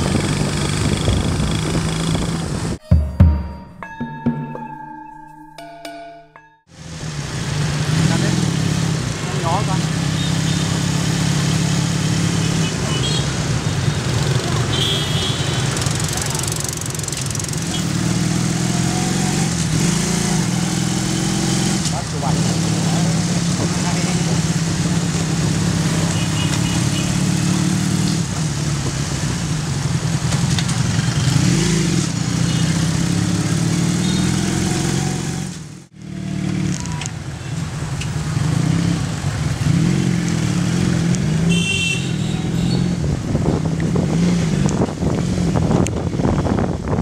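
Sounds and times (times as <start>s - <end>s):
small motorcycle engine revving: 0.0s - 2.8s, 30.8s - 37.1s
road noise: 0.0s - 2.9s, 6.7s - 47.0s
wind: 0.0s - 3.2s, 3.8s - 47.0s.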